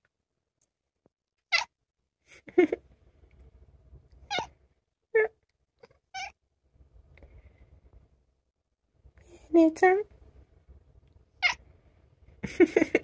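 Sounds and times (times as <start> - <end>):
cat squeaky calls: 1.5 - 1.7, 4.3 - 4.5, 6.1 - 6.4, 11.4 - 11.6.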